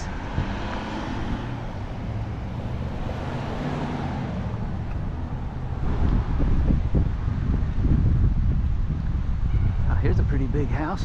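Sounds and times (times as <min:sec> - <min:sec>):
car driving past: 0:00.0 - 0:06.8.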